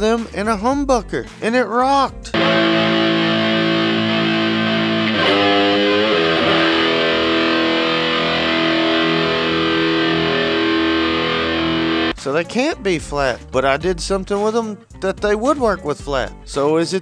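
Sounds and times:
electric guitar chords: 0:02.3 - 0:12.2.

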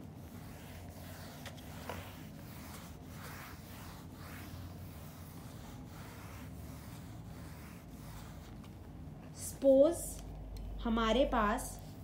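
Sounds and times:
eraser wiping dry-erase board: 0:00.0 - 0:08.8.

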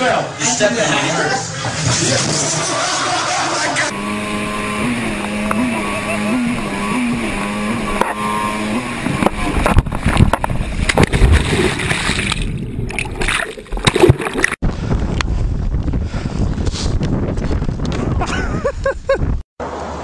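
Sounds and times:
outboard motor running: 0:03.9 - 0:13.1
crash into water with splashing: 0:10.1 - 0:14.6.

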